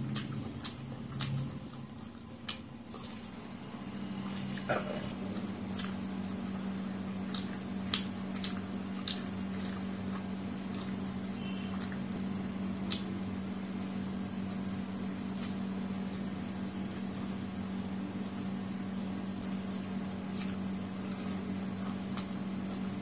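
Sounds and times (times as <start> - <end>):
person chewing noodles: 0.0 - 3.5, 4.2 - 12.0.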